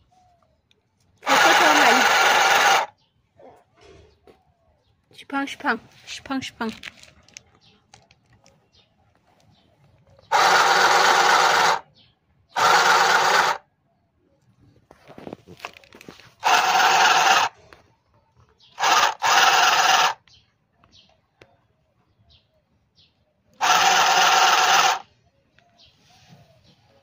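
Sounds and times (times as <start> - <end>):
sewing machine stitching: 1.2 - 2.9, 10.3 - 11.8, 16.4 - 17.5, 23.6 - 25.0.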